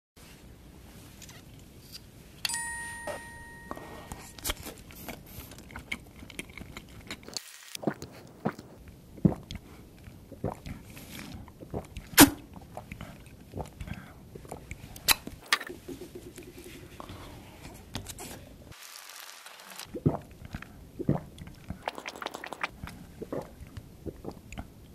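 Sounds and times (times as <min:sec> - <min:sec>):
ringing ding: 0:02.5 - 0:04.5
sucking and slurping: 0:04.9 - 0:24.8.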